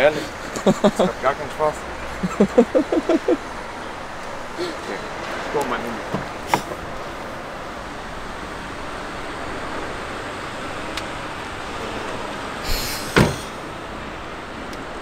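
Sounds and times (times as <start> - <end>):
distant traffic: 0.0 - 15.0
short rustle: 12.6 - 13.6
solid thump: 12.7 - 13.5.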